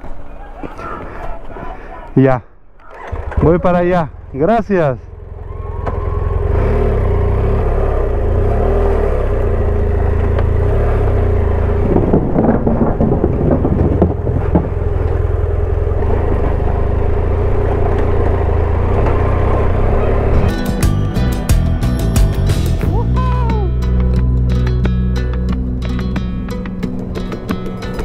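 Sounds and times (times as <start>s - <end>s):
motorcycle engine running: 2.9s - 28.0s
knocks and rattling: 11.6s - 17.0s.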